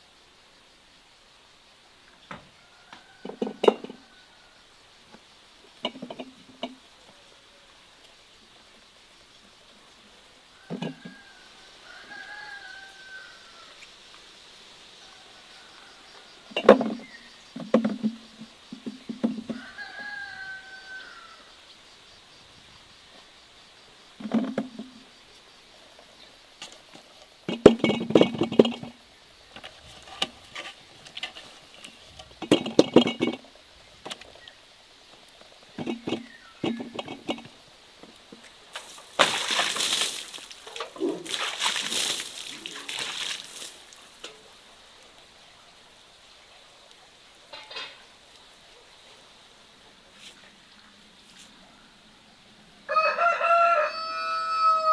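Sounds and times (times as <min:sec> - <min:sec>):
fruit knocking into glass jars: 0:16.5 - 0:19.6, 0:24.2 - 0:25.0, 0:27.4 - 0:29.0, 0:31.8 - 0:34.4, 0:35.7 - 0:37.6
liquid splashing: 0:38.7 - 0:44.2.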